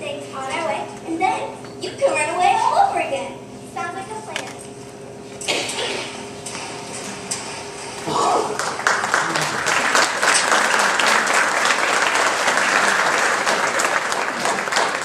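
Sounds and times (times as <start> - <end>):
audience applauding: 8.5 - 15.0.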